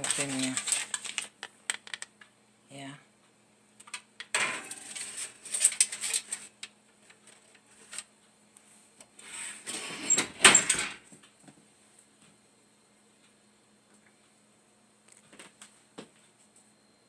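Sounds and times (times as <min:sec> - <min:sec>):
oven rack rattling and scraping: 0:04.4 - 0:06.5.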